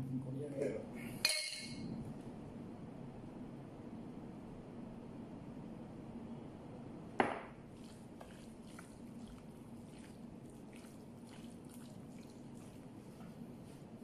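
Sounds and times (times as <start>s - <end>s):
steady low hum: 0.0s - 14.0s
wet squelches of hands mixing meat: 7.7s - 14.0s.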